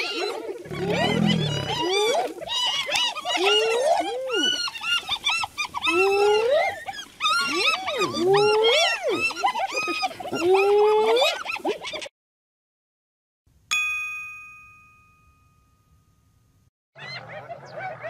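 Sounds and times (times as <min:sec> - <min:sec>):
hyenas yelping and whooping: 0:00.0 - 0:12.1, 0:17.0 - 0:18.0.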